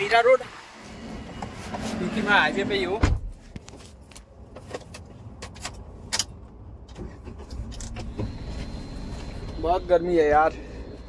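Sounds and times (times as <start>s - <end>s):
low steady rumble: 6.4s - 11.0s.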